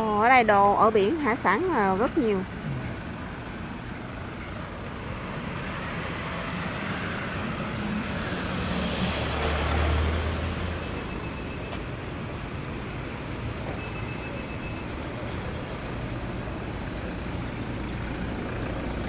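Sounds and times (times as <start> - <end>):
street traffic noise: 0.0 - 19.0
vehicle engine passing close: 4.8 - 11.1.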